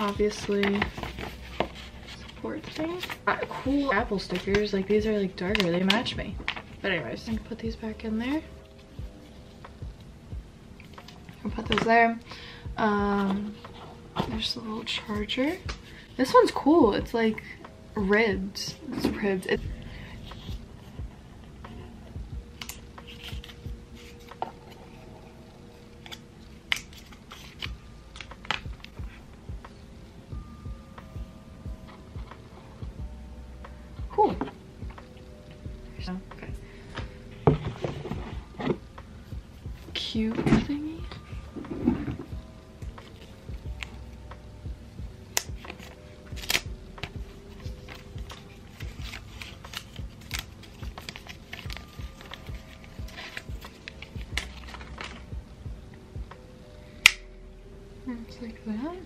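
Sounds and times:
paper crinkling: 45.4 - 55.3
cable snaps and clicks: 57.0 - 57.3.

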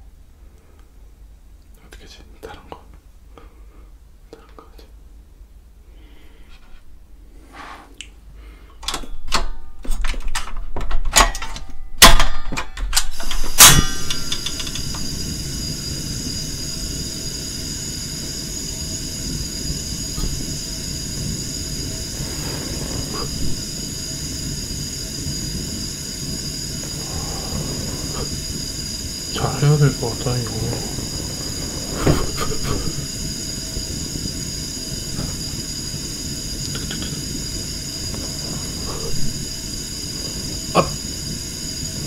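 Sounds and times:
gas stove igniter clicking: 13.0 - 15.1
burner igniting snap: 13.0 - 42.0
gas flame hissing: 13.1 - 42.0.

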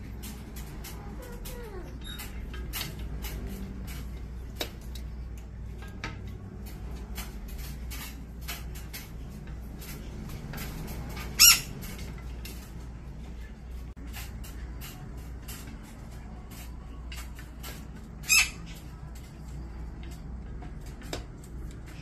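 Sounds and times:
light clicks and scratches: 0.0 - 22.0
parrot squawk: 11.3 - 11.8, 18.2 - 18.6.

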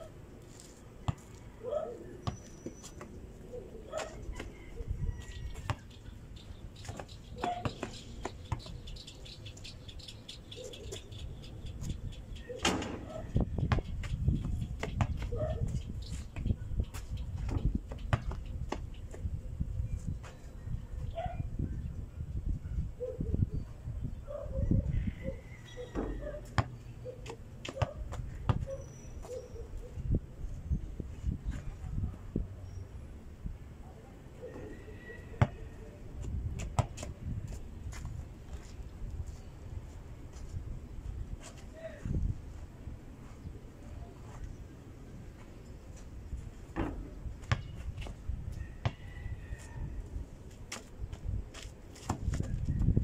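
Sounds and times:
basketball bouncing on dirt: 1.1 - 1.4, 2.2 - 3.1, 5.5 - 5.9, 6.8 - 8.8, 13.6 - 19.2, 25.9 - 28.7, 36.2 - 37.2, 46.7 - 48.2, 48.8 - 49.0, 51.9 - 53.0.

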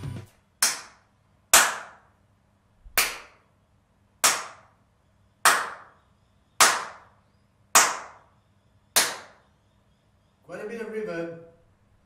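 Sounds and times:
hand claps with reverb: 0.6 - 1.0, 1.6 - 2.1, 3.0 - 3.4, 4.2 - 4.7, 5.4 - 5.9, 6.6 - 7.1, 7.8 - 8.2, 9.0 - 9.4.

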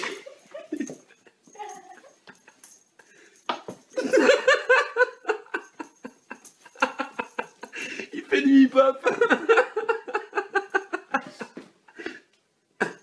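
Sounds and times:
person laughing: 0.0 - 2.6, 4.0 - 11.6.

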